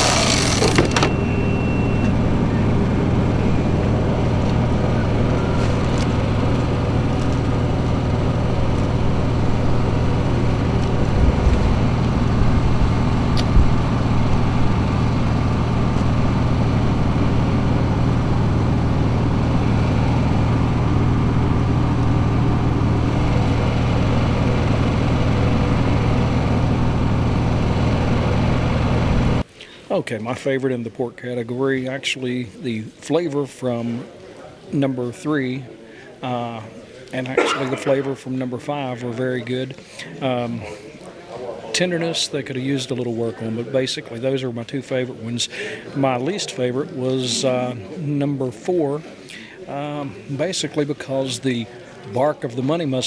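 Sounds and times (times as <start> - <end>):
small engine humming: 0.0 - 29.4.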